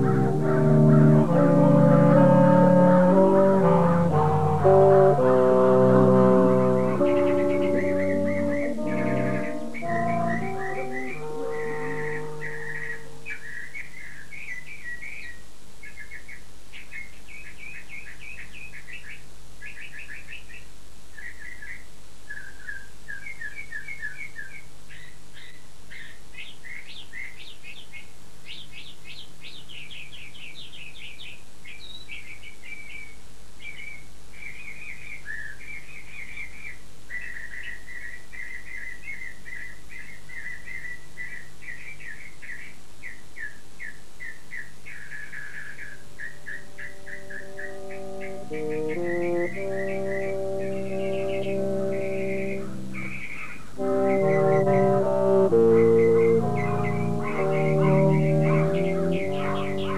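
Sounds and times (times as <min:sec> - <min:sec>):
bird song with trilled chirps: 0:05.6 - 0:59.9.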